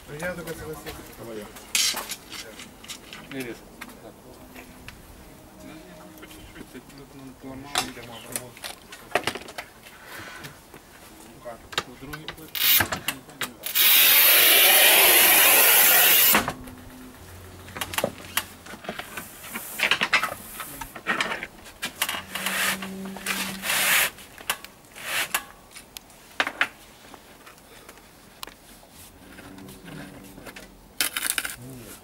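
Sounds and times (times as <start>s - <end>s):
tile cutter scratching tile: 13.7s - 16.4s.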